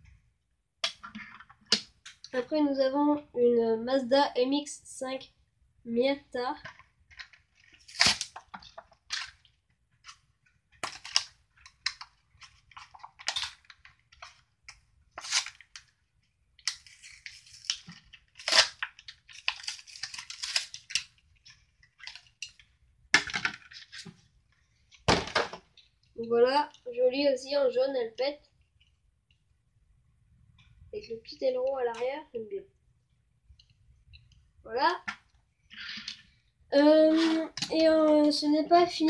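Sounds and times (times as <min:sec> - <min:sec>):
plastic packaging crackling and ripping: 0:07.1 - 0:10.2, 0:10.8 - 0:16.0, 0:16.6 - 0:24.1
packaging snapping: 0:10.8 - 0:15.9.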